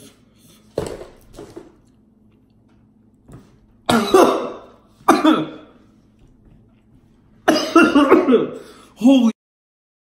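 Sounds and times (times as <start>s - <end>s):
man coughing: 3.8s - 5.8s, 7.4s - 9.3s.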